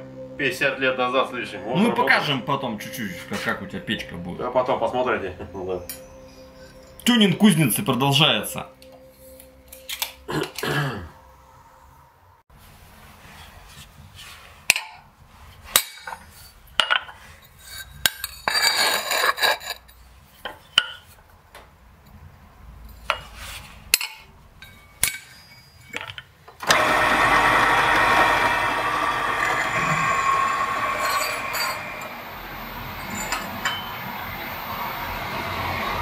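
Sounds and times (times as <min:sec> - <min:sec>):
loud steady machine noise: 0:26.6 - 0:36.0.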